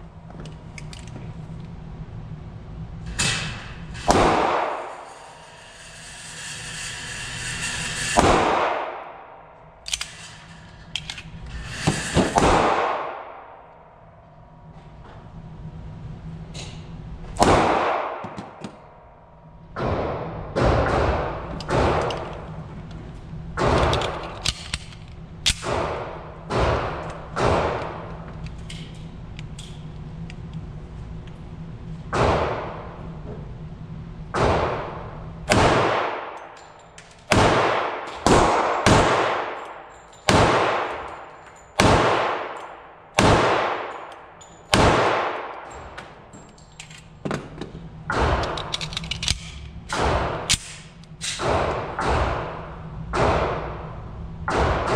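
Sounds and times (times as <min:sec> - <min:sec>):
pistol shots echoing: 0:37.3 - 0:41.1, 0:41.8 - 0:45.8.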